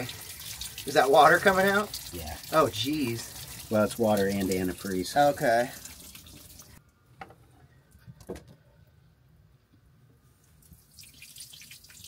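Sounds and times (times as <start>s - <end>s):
liquid dripping and spattering: 0.0s - 6.8s, 10.4s - 12.0s.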